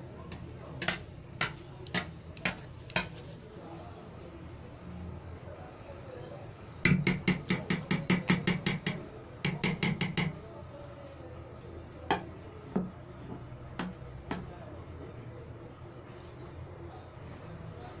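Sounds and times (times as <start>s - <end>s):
spoon knocking against metal pot: 0.3s - 3.1s, 6.9s - 10.4s, 12.1s - 13.0s, 13.8s - 14.5s.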